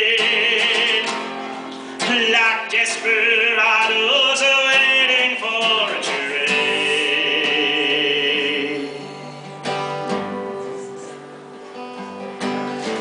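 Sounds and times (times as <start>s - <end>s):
man singing: 0.0s - 9.7s
acoustic guitar strumming: 0.0s - 13.0s.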